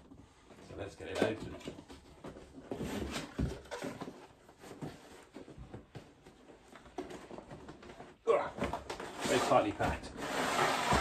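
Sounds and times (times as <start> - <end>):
cardboard scraping and rubbing: 9.0 - 11.0.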